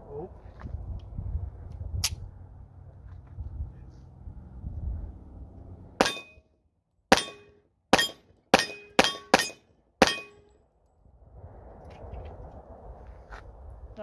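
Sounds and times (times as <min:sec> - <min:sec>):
pistol shots: 0:06.0 - 0:06.3, 0:07.1 - 0:10.3.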